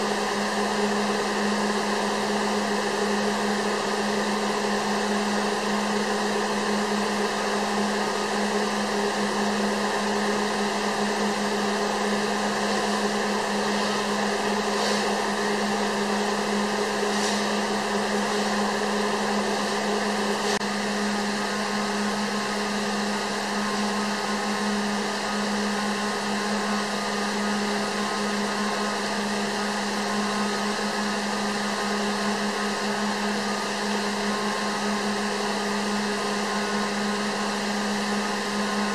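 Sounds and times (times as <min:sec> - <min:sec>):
machine hum: 0:00.0 - 0:38.9.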